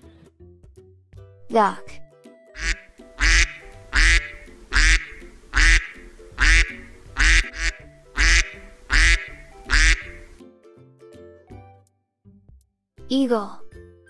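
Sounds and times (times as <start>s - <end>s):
duck quacking loudly: 2.6s - 10.3s.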